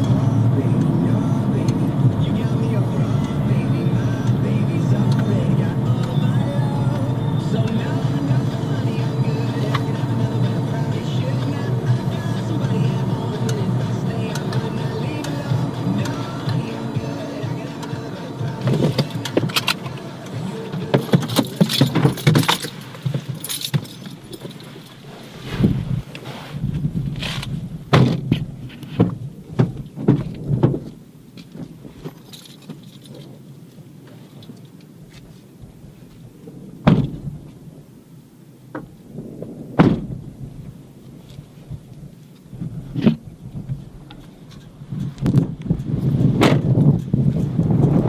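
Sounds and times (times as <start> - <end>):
waves crashing: 3.5 - 26.7
irregular clicks and rattles: 20.7 - 25.0, 27.2 - 33.4.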